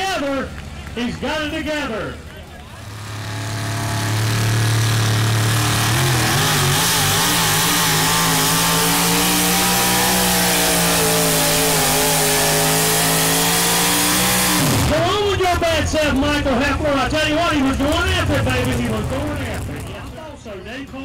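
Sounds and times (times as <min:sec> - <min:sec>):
truck engine at full throttle: 0:00.0 - 0:20.9.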